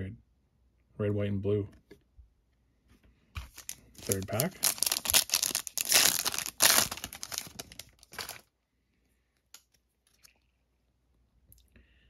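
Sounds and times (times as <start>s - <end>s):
card pack wrapper tearing: 3.5s - 8.4s.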